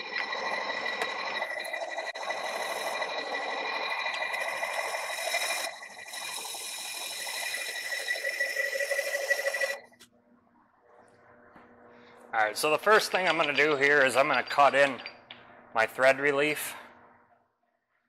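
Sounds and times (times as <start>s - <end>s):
lathe cutting steel: 0.0s - 9.8s, 12.5s - 15.2s
high ringing tone: 0.0s - 10.0s, 12.8s - 15.4s.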